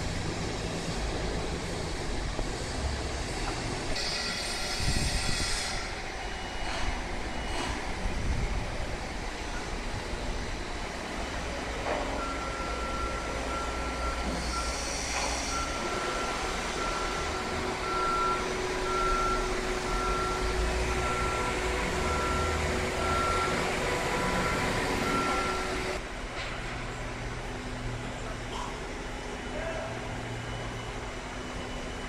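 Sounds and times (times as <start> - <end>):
traffic: 0.0 - 32.0
vehicle warning beeper: 12.1 - 26.0.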